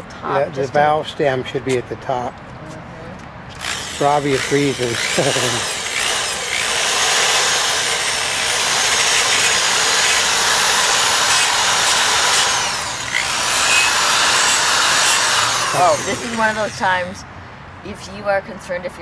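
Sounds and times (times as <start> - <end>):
electric drill sanding metal: 3.5 - 17.2.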